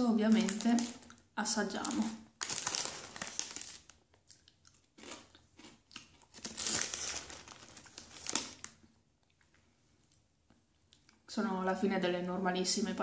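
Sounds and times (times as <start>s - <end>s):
crunching potato sticks: 0.3s - 9.5s.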